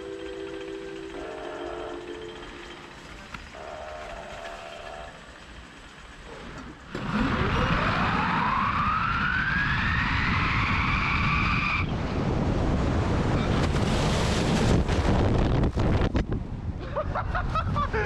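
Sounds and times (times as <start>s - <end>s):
rising whine of skis: 6.3s - 12.2s
wind rush: 7.4s - 18.0s.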